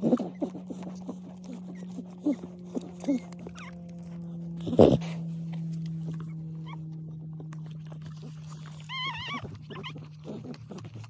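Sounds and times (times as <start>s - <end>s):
puppies squeaking: 0.0s - 11.0s
steady low hum: 0.0s - 11.0s
puppy crying high-pitched: 8.7s - 10.5s.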